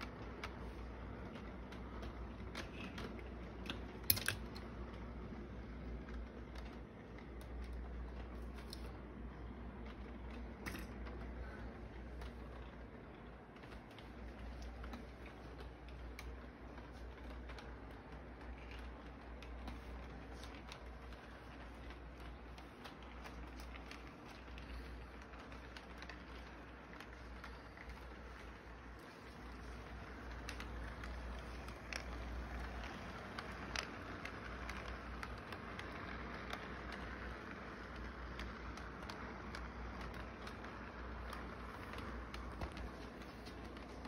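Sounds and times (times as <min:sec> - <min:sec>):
model train wheels clicking: 0:00.0 - 0:44.0
steady low hum: 0:00.0 - 0:44.0.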